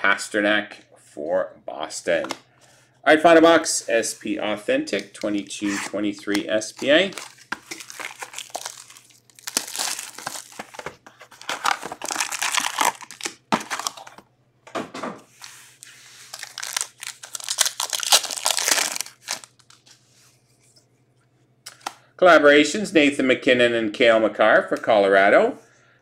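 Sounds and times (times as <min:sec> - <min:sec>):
plastic wrap crinkling and tearing: 0:06.7 - 0:14.2, 0:15.4 - 0:19.8
foil packs rustling: 0:06.8 - 0:14.2, 0:16.2 - 0:19.8
wrapper tearing open: 0:07.0 - 0:14.2, 0:16.3 - 0:19.8.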